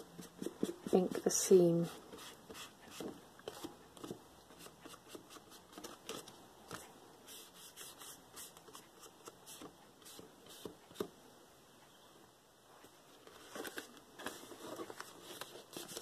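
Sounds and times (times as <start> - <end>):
paper rustling: 13.2 - 16.0.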